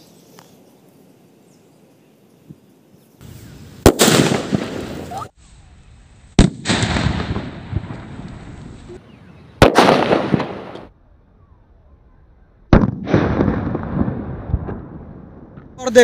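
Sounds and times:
plastic bottles bursting with bangs: 3.8s - 4.9s.

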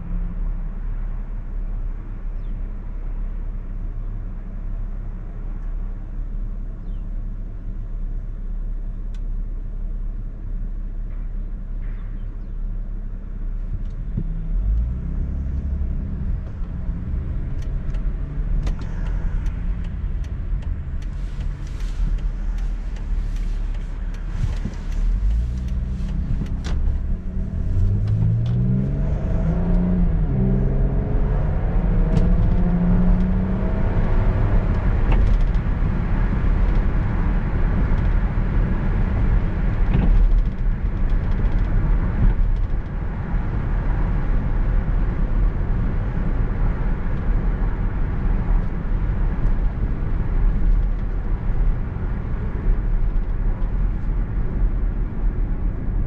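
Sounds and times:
car engine accelerating: 13.6s - 56.0s.

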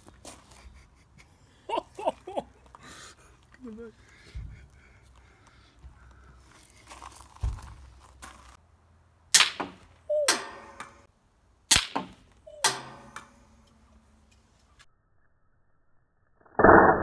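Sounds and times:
sharp cracks of crossbow shots: 9.3s - 11.1s, 11.7s - 13.4s.

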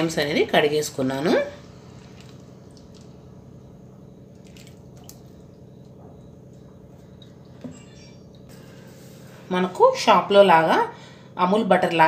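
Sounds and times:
steady low hum: 0.0s - 12.0s
squelching and dripping of kneading: 1.6s - 3.5s, 4.3s - 6.0s.

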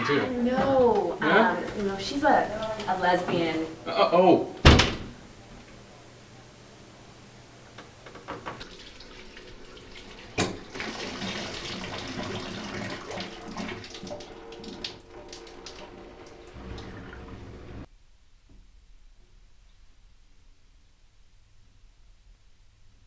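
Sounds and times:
water running from bathtub tap: 8.3s - 17.9s
water splashes and drips: 8.6s - 17.6s.

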